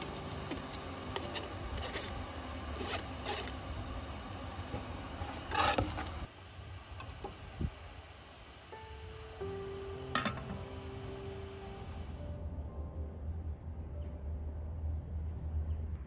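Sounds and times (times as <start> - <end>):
metal spoon scraping pot: 0.0 - 3.6, 5.2 - 6.2
steady hiss: 0.0 - 12.4.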